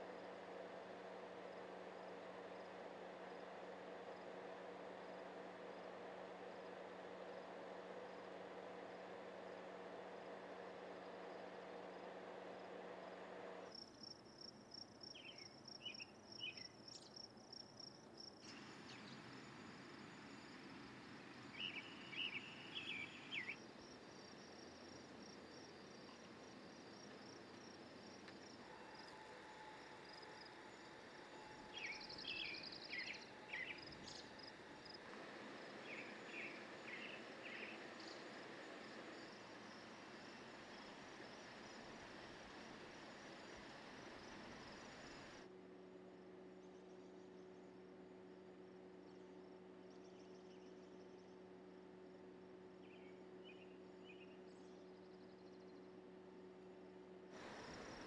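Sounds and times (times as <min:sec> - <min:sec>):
high insect trill: 0:13.7 - 0:35.0, 0:35.6 - 0:45.4, 0:57.4 - 0:58.0
small birds chirping: 0:21.4 - 0:23.6, 0:31.7 - 0:35.0, 0:35.7 - 0:39.3.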